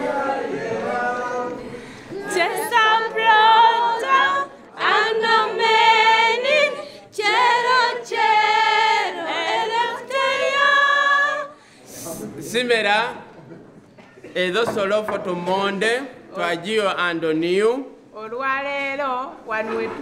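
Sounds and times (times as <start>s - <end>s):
girls singing together: 0.0s - 11.8s.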